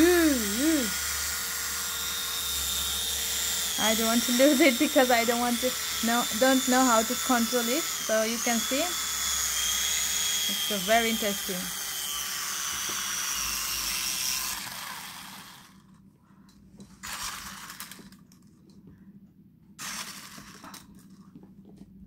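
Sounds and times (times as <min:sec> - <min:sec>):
toy helicopter motor whirring: 0:00.0 - 0:16.0, 0:17.0 - 0:18.3, 0:19.8 - 0:20.9
toy being handled: 0:19.8 - 0:21.1.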